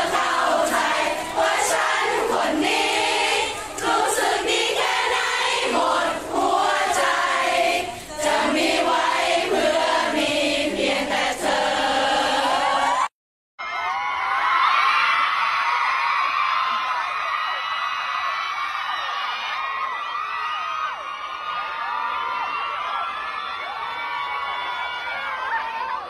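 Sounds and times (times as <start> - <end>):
crowd singing in unison: 0.0 - 13.1.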